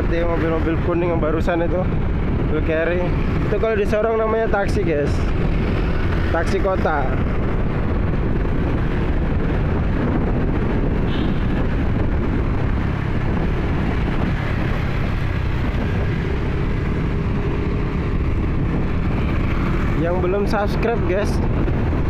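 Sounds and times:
wind noise on microphone: 0:00.0 - 0:22.0
motorcycle engine: 0:05.1 - 0:20.4.

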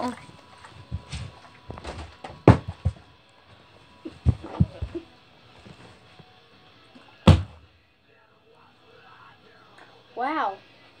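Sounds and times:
plastic bottle thudding on carpet: 0:00.9 - 0:03.0, 0:04.1 - 0:05.0, 0:07.3 - 0:07.6.

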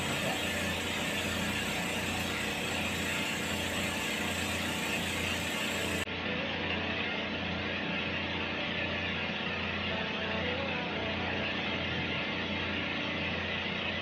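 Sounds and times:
dental suction hissing: 0:00.0 - 0:06.0
dental scaler whirring: 0:00.0 - 0:06.1.

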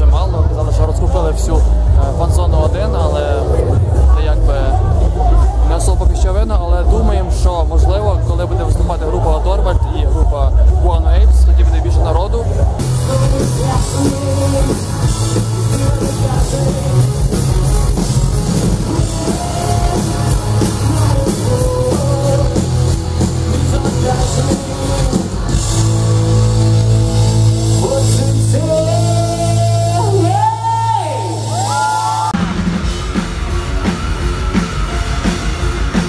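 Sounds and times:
distorted electric guitars: 0:00.0 - 0:36.0
drum kit: 0:00.0 - 0:36.0
man singing: 0:12.8 - 0:18.0, 0:18.6 - 0:26.4, 0:27.7 - 0:31.1.

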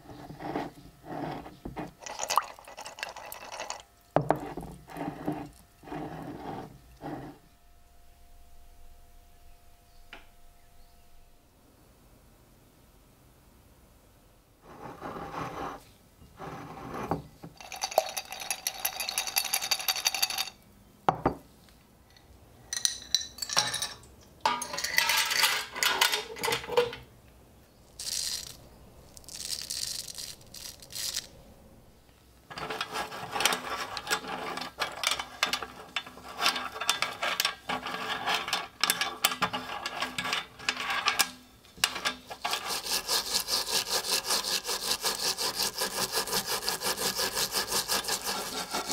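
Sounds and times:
brush scrubbing coins in metal sink: 0:28.0 - 0:28.6, 0:29.2 - 0:31.3, 0:32.6 - 0:41.2, 0:41.9 - 0:48.9
coins clinking and sliding: 0:28.0 - 0:31.3.

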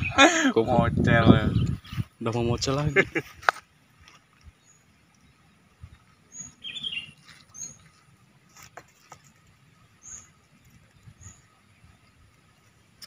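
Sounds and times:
small birds chirping: 0:00.0 - 0:13.0
faint clicks: 0:03.4 - 0:05.4.

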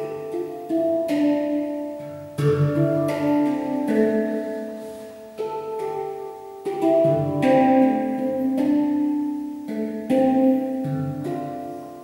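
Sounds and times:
handpan melody: 0:00.0 - 0:12.0.

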